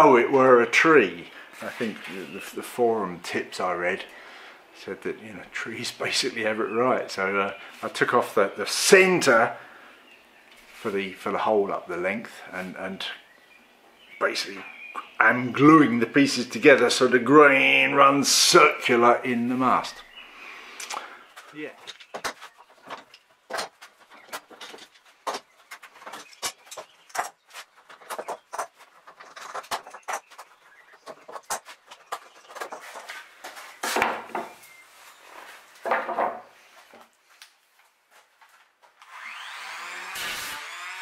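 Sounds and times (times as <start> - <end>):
electric hand planer motor running: 39.0 - 41.0.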